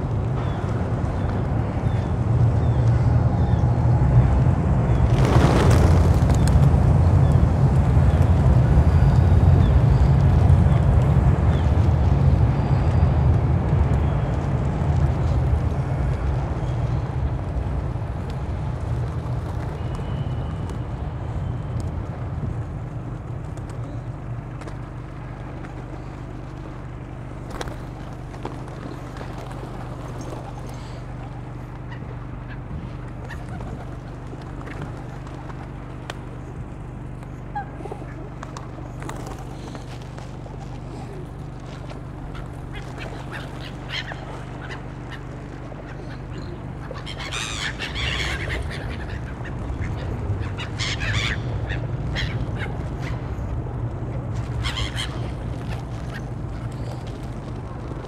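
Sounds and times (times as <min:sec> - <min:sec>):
low mechanical hum: 0:00.0 - 0:58.0
pigeon wings flapping: 0:04.9 - 0:36.6, 0:37.5 - 0:58.0
gulls calling: 0:04.9 - 0:58.0.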